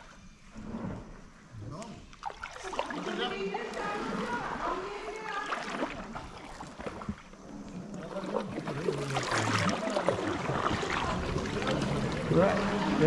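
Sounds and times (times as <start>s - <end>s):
water sloshing around kayaks: 0.0s - 13.0s
people's voices: 2.6s - 6.2s, 8.0s - 13.0s.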